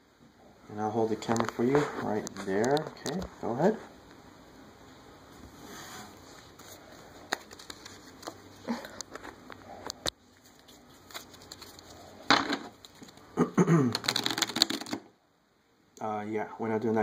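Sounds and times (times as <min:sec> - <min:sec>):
playing cards being shuffled: 0:05.7 - 0:15.1.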